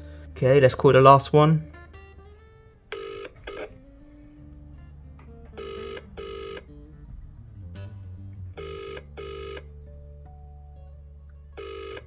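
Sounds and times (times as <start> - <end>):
telephone ringing tone: 2.9 - 3.8, 5.5 - 6.6, 8.6 - 9.7, 11.6 - 12.0.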